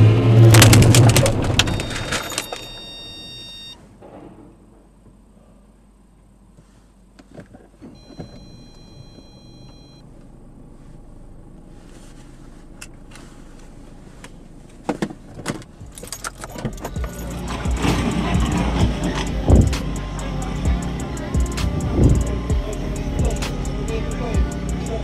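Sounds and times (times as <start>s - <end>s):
low steady rumble: 0.0s - 25.0s
electronic beep: 1.6s - 3.8s, 8.0s - 10.0s.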